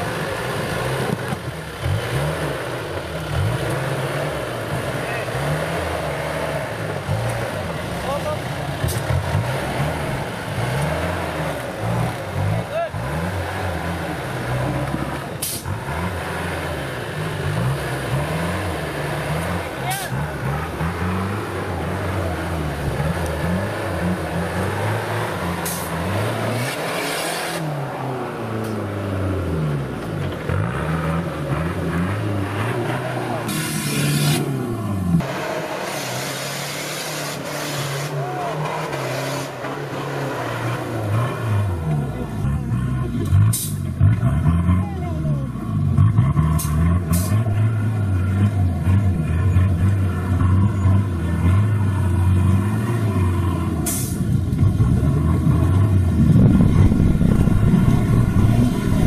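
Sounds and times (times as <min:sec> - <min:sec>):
off-road vehicle engine revving: 0:00.0 - 0:59.0
steady rushing noise: 0:56.0 - 0:59.0.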